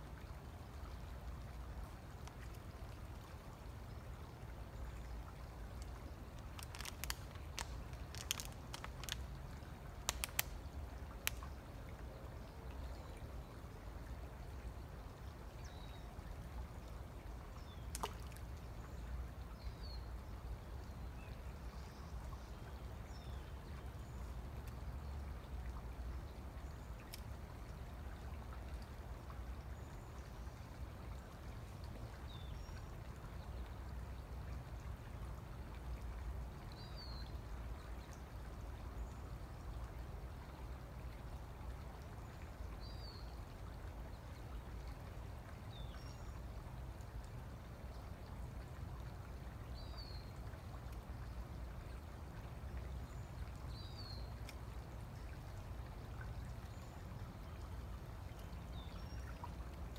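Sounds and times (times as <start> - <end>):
creek water trickling: 0.0 - 59.9.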